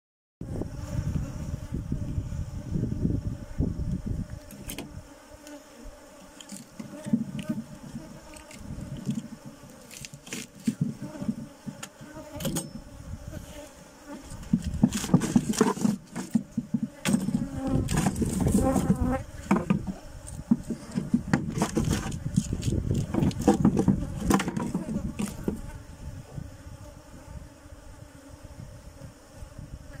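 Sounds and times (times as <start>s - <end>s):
bees buzzing: 0.4s - 30.0s
wooden hive frames knocking: 8.8s - 12.8s, 14.1s - 25.7s.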